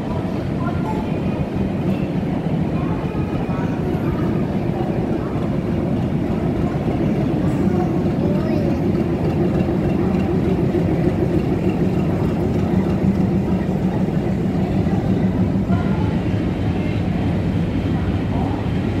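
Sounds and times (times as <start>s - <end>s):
diesel locomotive engine droning: 0.0s - 19.0s.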